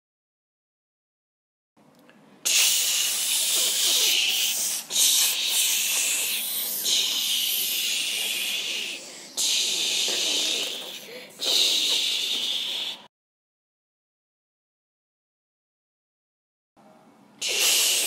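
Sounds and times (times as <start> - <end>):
loud hissing noise: 2.4 - 13.1, 17.4 - 18.0.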